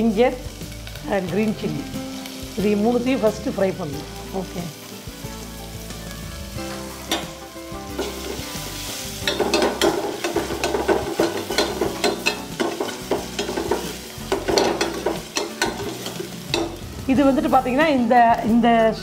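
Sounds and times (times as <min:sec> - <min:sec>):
food sizzling in hot oil: 0:00.0 - 0:19.0
metal spoon scraping a pan: 0:06.7 - 0:16.9.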